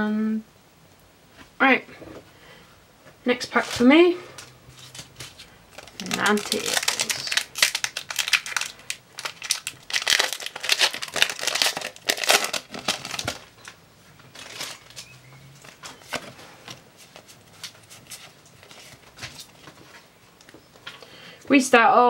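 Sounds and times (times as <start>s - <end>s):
foil wrapper crinkling: 4.8s - 20.5s.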